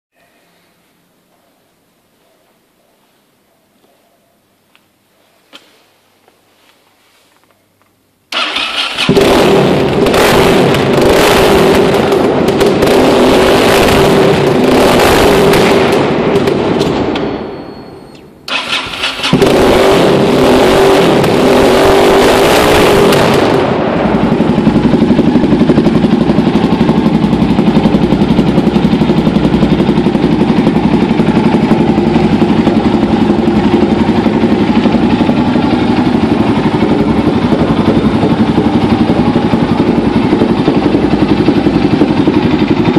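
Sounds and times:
motorcycle engine revving: 8.3 - 17.3, 18.5 - 42.9
motorcycle engine idling: 23.3 - 42.9.

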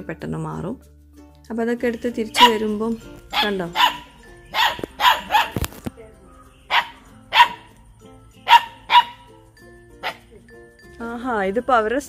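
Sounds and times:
puppies barking: 2.3 - 5.8, 6.6 - 7.8, 8.4 - 9.4, 10.0 - 10.3.

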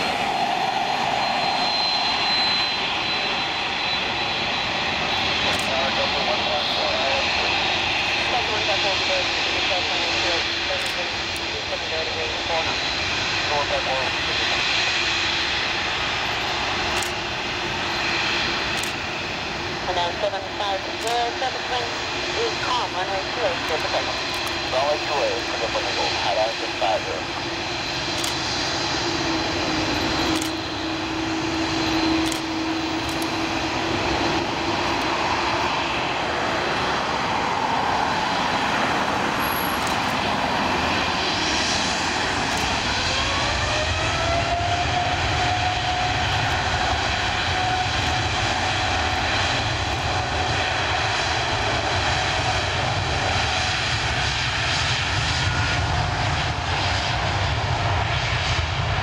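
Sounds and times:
engine whine rising in pitch: 0.0 - 5.4, 27.6 - 54.2
airliner engine noise: 0.0 - 59.0.

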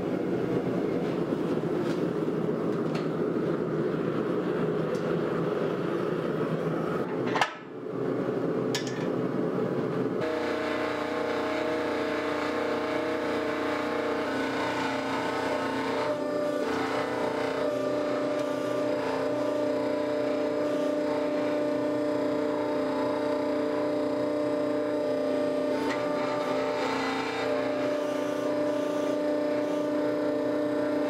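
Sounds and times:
forging press motor humming: 8.7 - 31.0.

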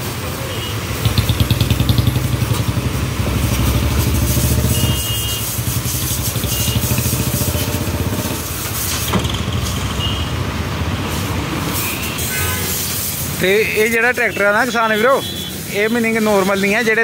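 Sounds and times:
water jet hissing: 0.1 - 10.1, 10.9 - 16.9
pressure washer running: 1.0 - 9.2.

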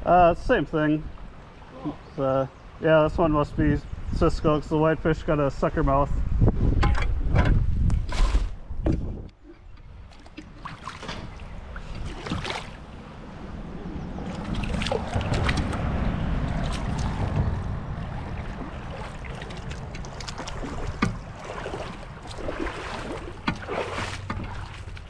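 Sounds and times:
water splashing and sloshing: 1.0 - 2.8, 6.8 - 25.0
wind rumble on microphone: 3.1 - 25.0.

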